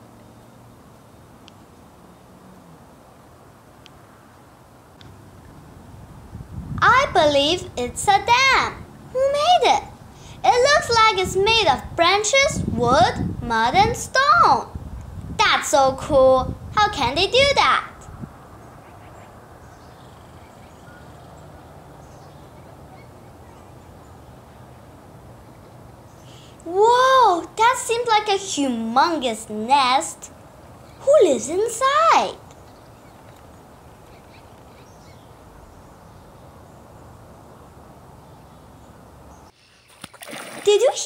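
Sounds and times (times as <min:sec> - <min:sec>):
low background noise: 0:00.0 - 0:41.0
outdoor background noise: 0:00.0 - 0:41.0
distant bird calls: 0:18.4 - 0:26.6, 0:32.4 - 0:40.6.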